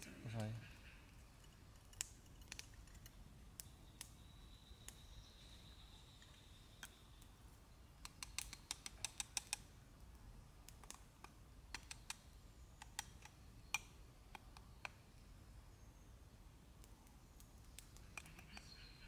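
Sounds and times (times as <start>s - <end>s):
faint sharp clicks: 1.4s - 4.2s, 10.6s - 12.2s.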